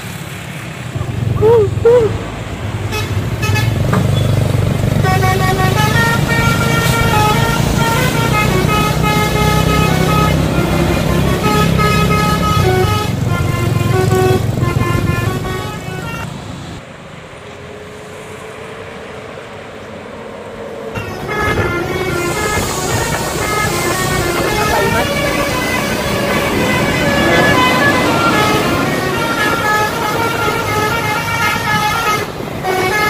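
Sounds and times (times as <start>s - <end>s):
bus engine rumble: 0.0s - 33.0s
multi-tone bus horn melody: 2.8s - 16.4s, 21.0s - 33.0s.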